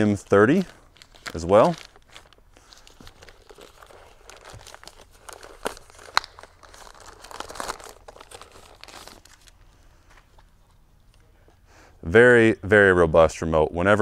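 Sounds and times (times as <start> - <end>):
plastic bag crinkling: 0.0 - 10.4.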